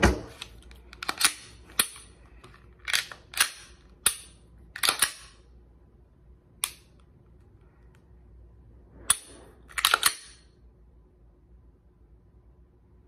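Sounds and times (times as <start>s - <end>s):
pistol action clicking: 2.9s - 5.4s, 6.6s - 7.0s.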